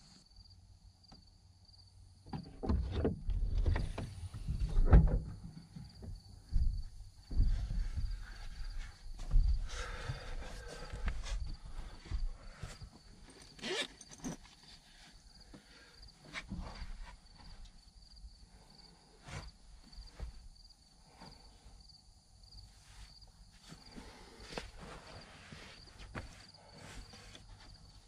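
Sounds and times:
insect chirping: 0.0s - 2.5s, 3.4s - 16.3s, 17.2s - 24.6s
rustles and knocks: 2.3s - 14.9s, 15.5s - 17.8s, 19.2s - 20.6s, 22.9s - 28.0s.

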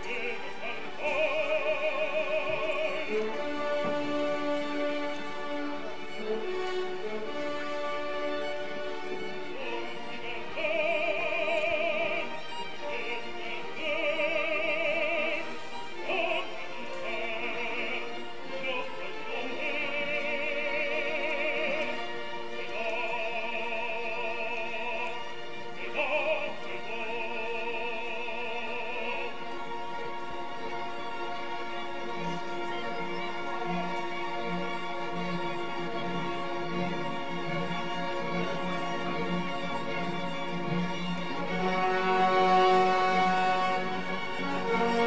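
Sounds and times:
operatic singing with vibrato: 0.0s - 45.0s
orchestra: 0.0s - 45.0s.

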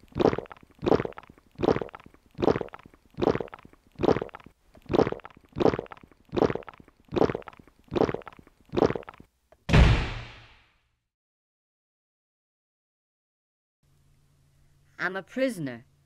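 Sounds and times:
person gulping a drink: 0.0s - 9.3s.

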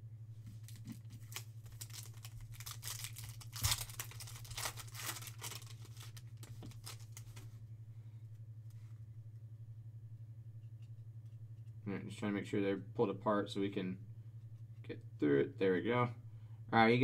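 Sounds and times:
low electrical hum: 0.0s - 17.0s
foil tearing: 0.6s - 7.4s
foil wrapper crinkling: 0.6s - 7.5s.

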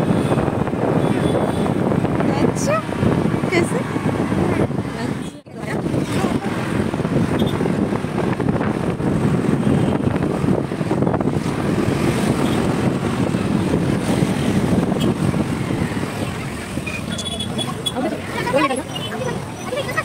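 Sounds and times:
road noise: 0.0s - 20.0s
wind buffeting microphone: 0.0s - 20.0s.

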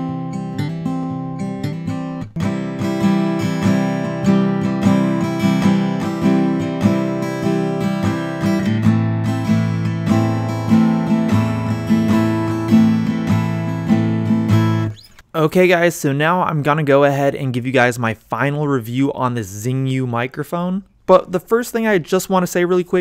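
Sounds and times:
acoustic guitar strumming: 0.0s - 15.2s.

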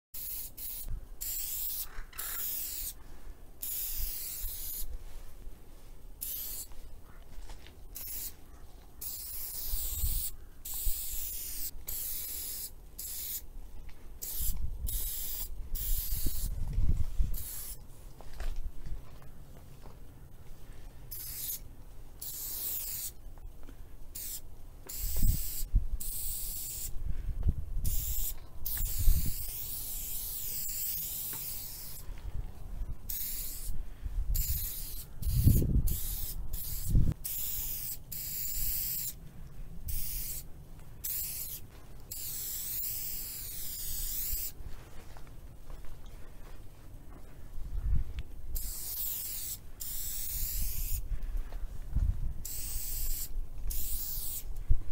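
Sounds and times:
spray paint can hissing: 0.2s - 3.0s, 3.6s - 4.9s, 6.2s - 6.8s, 8.0s - 8.4s, 9.0s - 13.5s, 14.2s - 16.6s, 17.3s - 17.8s, 21.1s - 21.6s, 22.2s - 23.2s, 24.1s - 26.9s, 27.8s - 32.0s, 33.1s - 39.2s, 39.9s - 44.6s, 48.5s - 51.0s, 52.4s - 54.5s
dull low thumps: 51.8s - 52.4s.

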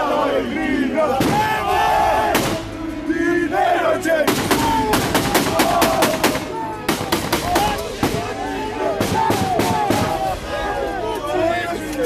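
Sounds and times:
men yelling: 0.0s - 12.0s
rapid gunshots: 4.3s - 8.4s, 9.0s - 10.2s.

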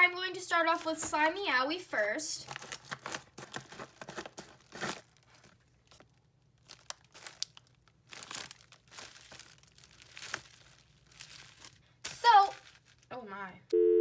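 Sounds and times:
plastic and bubble wrap crinkling: 2.4s - 13.2s.

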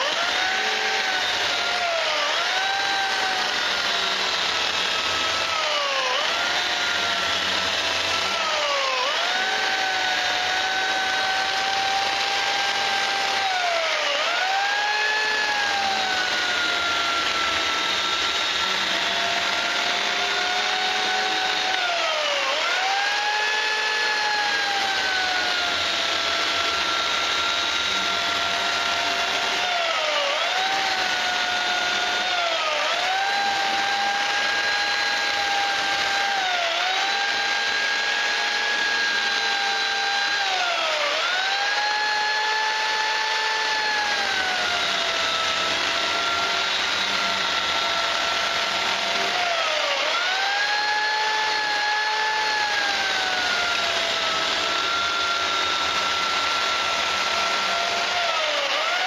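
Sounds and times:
electric chainsaw cutting rubber: 0.0s - 59.0s.

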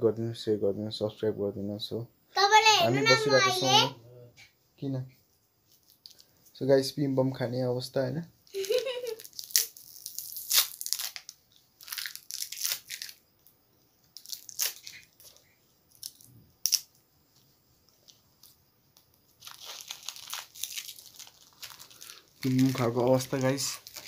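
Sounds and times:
candy crunching: 8.6s - 13.2s, 14.1s - 16.9s, 19.3s - 24.0s
foil wrapper crinkling and tearing: 8.6s - 13.2s, 14.1s - 17.0s, 18.0s - 24.0s.

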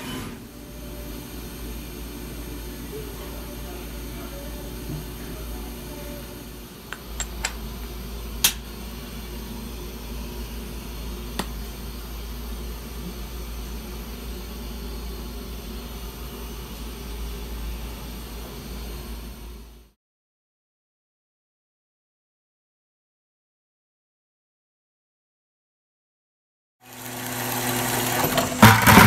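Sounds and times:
milling machine humming: 0.0s - 19.8s, 26.8s - 29.0s.

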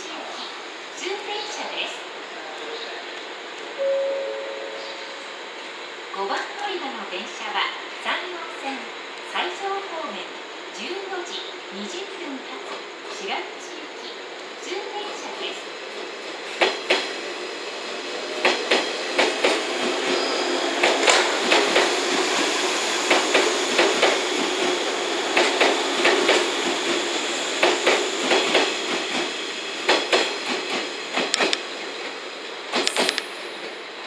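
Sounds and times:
electric train running hum: 0.2s - 34.0s
train wheels clacking over rail joints: 16.5s - 17.1s, 18.4s - 20.2s, 20.8s - 31.7s, 32.7s - 33.4s.

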